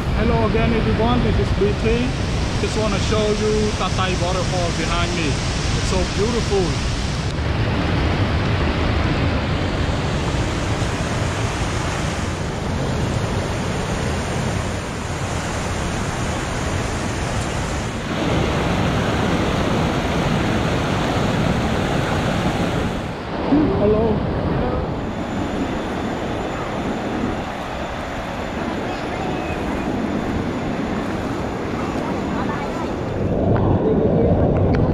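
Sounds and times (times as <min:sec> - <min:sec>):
waterfall roaring: 0:00.0 - 0:34.9.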